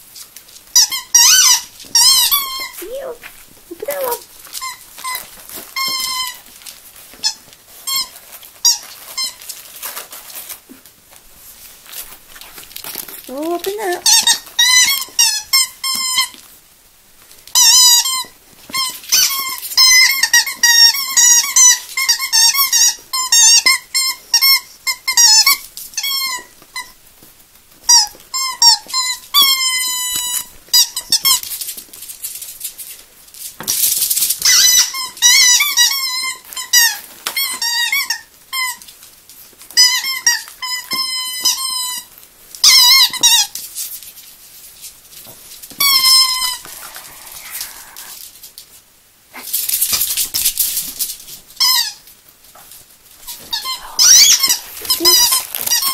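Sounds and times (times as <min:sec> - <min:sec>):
squeaky dog toy: 0:00.7 - 0:06.5, 0:07.2 - 0:09.8, 0:13.3 - 0:16.4, 0:17.5 - 0:27.0, 0:27.9 - 0:31.4, 0:34.4 - 0:38.9, 0:39.7 - 0:43.6, 0:45.8 - 0:46.8, 0:51.6 - 0:52.1, 0:53.3 - 0:55.9.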